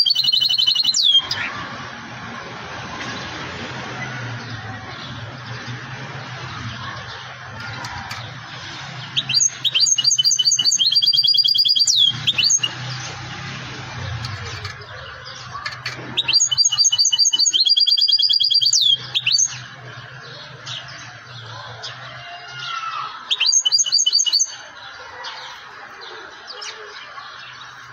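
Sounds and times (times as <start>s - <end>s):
goldfinch singing: 0.0s - 1.6s, 5.0s - 25.6s.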